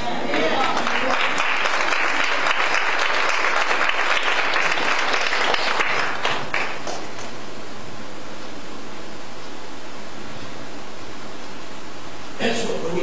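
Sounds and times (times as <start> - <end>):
congregation clapping: 0.2 - 7.4.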